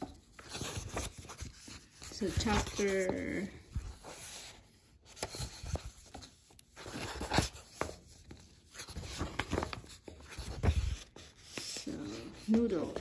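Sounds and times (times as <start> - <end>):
paper pages turning: 0.0 - 13.0
soft knocks of pages: 5.1 - 13.0.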